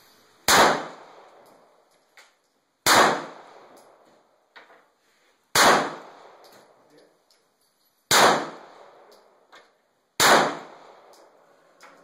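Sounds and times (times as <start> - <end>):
pistol shots echoing: 0.5 - 1.4, 2.8 - 3.8, 5.5 - 6.4, 8.1 - 9.1, 10.2 - 11.3.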